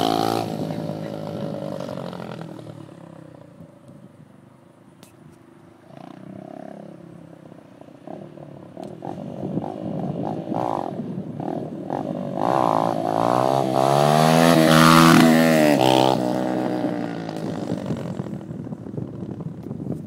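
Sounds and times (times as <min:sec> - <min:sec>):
dirt bike engine revving: 0:00.0 - 0:02.6, 0:08.8 - 0:18.4.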